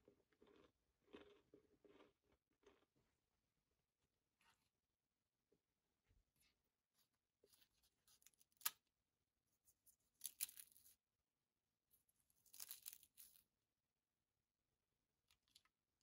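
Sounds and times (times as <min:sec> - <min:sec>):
crisp pastry crackling and snapping: 0:07.9 - 0:08.9, 0:10.1 - 0:11.0, 0:12.4 - 0:13.5.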